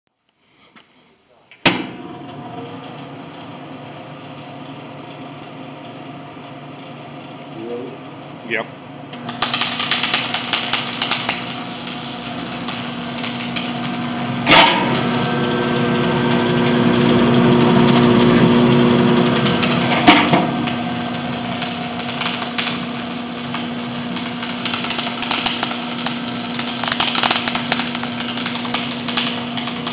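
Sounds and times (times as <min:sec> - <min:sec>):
welder hum: 0:09.1 - 0:29.9
welding arc crackling: 0:09.2 - 0:29.9.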